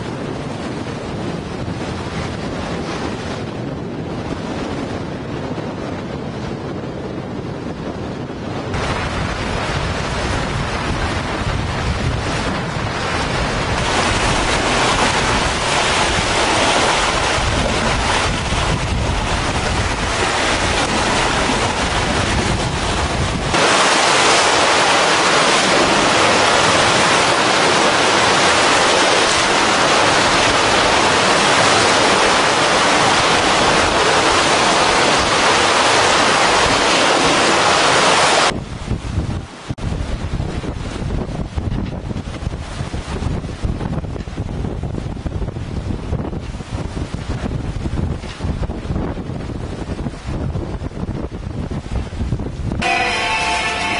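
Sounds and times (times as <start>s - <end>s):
wind blowing across microphone: 0.0s - 53.9s
sea waves: 8.7s - 53.9s.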